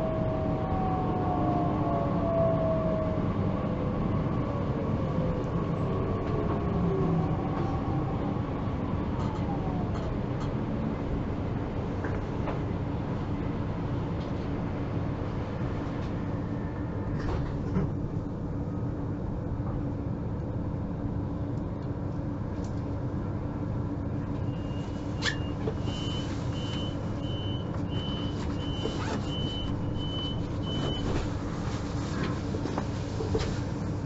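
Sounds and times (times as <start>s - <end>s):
train equipment hum: 0.0s - 34.0s
rapid high door warning beeps: 25.4s - 31.0s.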